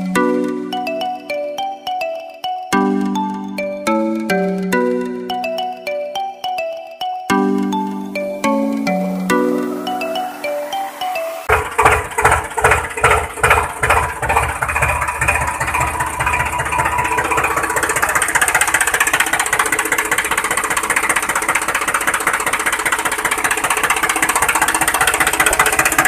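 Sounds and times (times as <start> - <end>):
diesel tractor engine chugging: 11.5 - 26.0.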